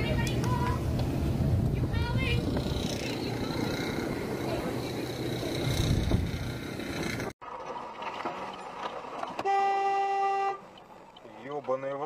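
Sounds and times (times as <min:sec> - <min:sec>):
traffic noise: 0:00.0 - 0:12.0
car horn blast: 0:09.4 - 0:10.6.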